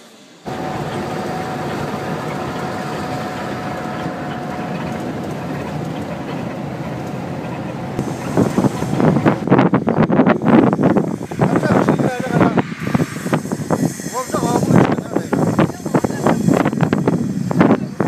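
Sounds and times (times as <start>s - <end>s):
coach engine and road noise: 0.0s - 18.0s
people's voices: 11.2s - 18.0s.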